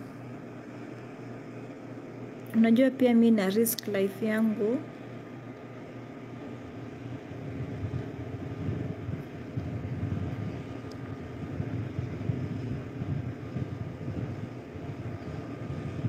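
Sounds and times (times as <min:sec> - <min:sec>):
wind buffeting microphone: 0:06.2 - 0:16.0.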